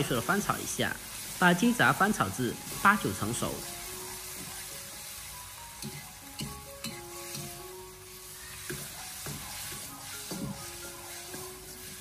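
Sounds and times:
meat sizzling in hot oil: 0:00.0 - 0:12.0
ladle scraping and knocking wok: 0:02.6 - 0:12.0.

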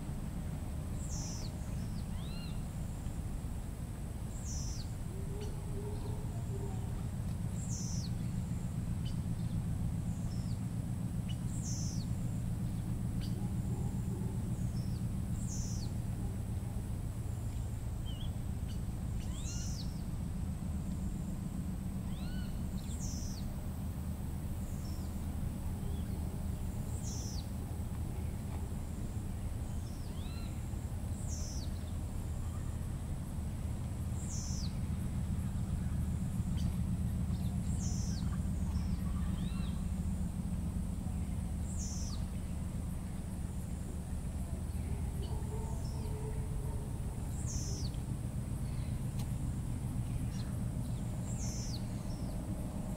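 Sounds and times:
low rumble: 0:00.0 - 0:52.9
steady high drone: 0:00.0 - 0:52.9
short rising bird calls: 0:22.0 - 0:23.5.

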